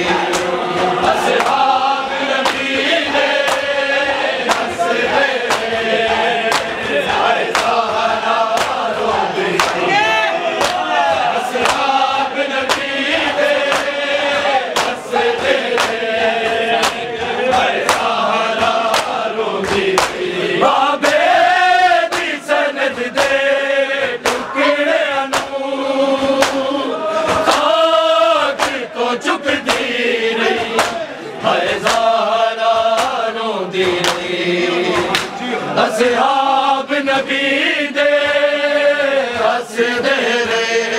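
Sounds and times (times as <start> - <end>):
men's chorus chanting: 0.0 - 40.9
chest-beating slaps: 0.1 - 9.9, 10.6 - 20.3, 22.0 - 24.6, 25.3 - 25.6, 26.2 - 27.8, 28.5 - 28.9, 29.5 - 32.2, 32.8 - 35.4.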